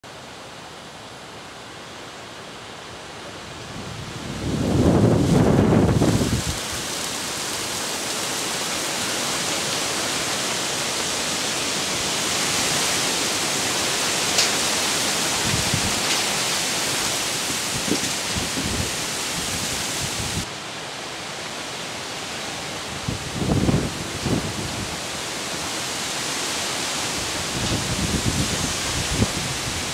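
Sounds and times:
wind and heavy rain hissing: 0.0 - 29.9
wind gusts thumping microphone: 3.7 - 7.8, 14.4 - 20.5, 22.9 - 25.0, 27.1 - 29.9.

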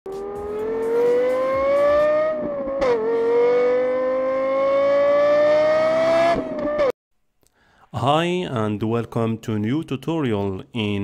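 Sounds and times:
car engine accelerating hard: 0.2 - 6.9.

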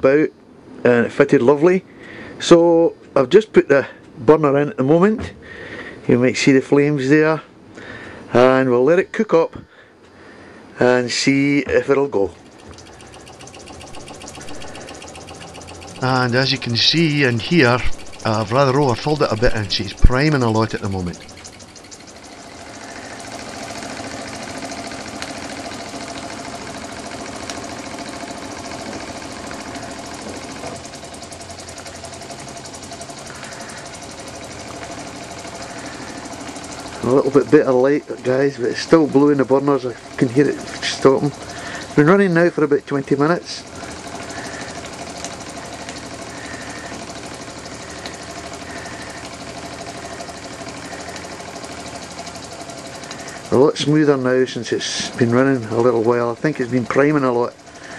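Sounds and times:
toy steam engine exhaust beat: 12.3 - 57.9.

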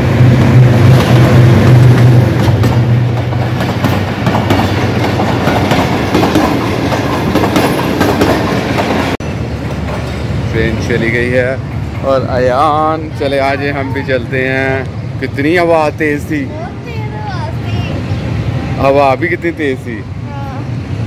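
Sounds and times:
diesel locomotive engine hum: 0.0 - 21.0
train wheels clattering over rail joints: 0.2 - 12.9.

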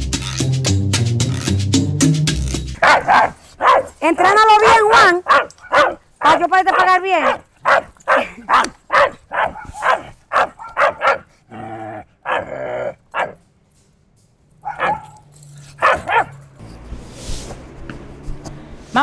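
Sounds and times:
dog barking: 2.8 - 4.0, 4.6 - 11.3, 12.2 - 13.4, 14.6 - 16.4.

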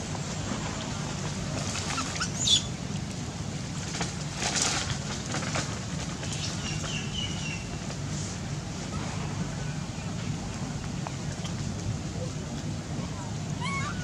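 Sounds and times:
monkey high calls: 13.6 - 14.0
monkey squealing: 13.6 - 14.0.

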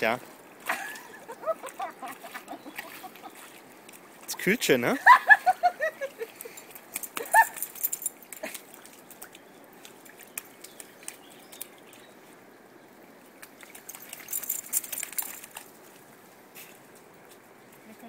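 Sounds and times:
dog splashing in puddle: 0.6 - 4.4, 6.2 - 12.1, 13.3 - 16.2.

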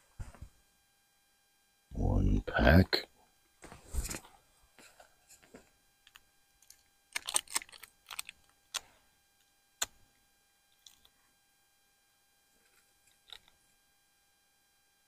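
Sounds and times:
packaging rustling: 6.1 - 8.8.

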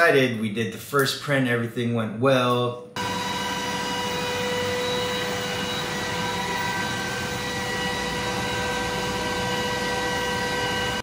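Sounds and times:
high whine: 3.0 - 11.0
laser cutter fans whirring: 3.0 - 11.0.

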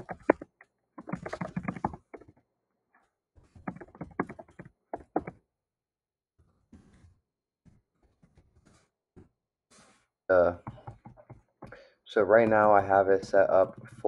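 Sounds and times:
computer keyboard typing: 0.0 - 2.3, 3.6 - 5.4.

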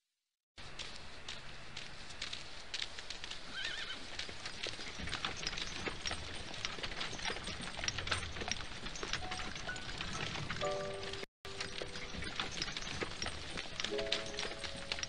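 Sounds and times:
hoof clip-clops: 0.6 - 15.0
horse whinnying: 3.5 - 4.0.

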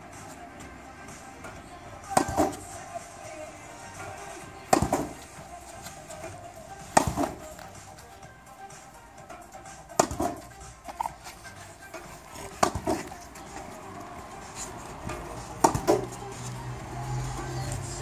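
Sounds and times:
ball hitting rebound net: 2.1 - 2.6, 4.6 - 5.3, 6.8 - 7.7, 9.9 - 11.0, 11.9 - 13.7, 15.0 - 16.2
racket striking tennis ball: 2.1 - 2.6, 4.6 - 5.3, 6.8 - 7.8, 9.7 - 11.1, 11.9 - 13.8, 14.5 - 16.2.

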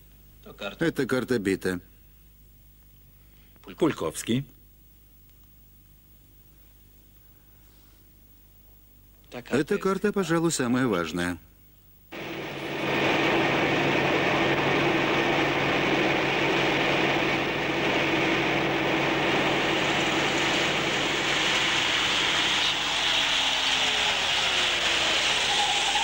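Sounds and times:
motorcycle engine drone: 12.1 - 26.0
tyre hiss on wet road: 19.4 - 26.0.

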